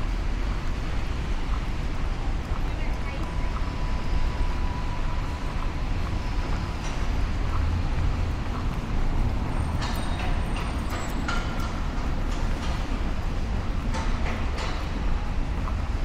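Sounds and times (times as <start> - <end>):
traffic rumble: 0.0 - 16.0.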